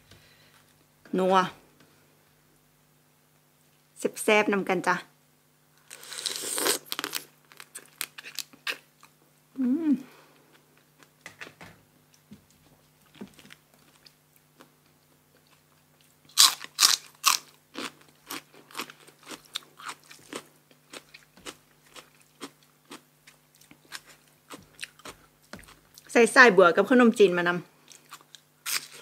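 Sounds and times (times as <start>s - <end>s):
faint steady hum: 0.0s - 29.0s
loud crunching bites: 5.9s - 8.8s, 16.3s - 23.0s
crunchy chewing: 15.3s - 26.1s.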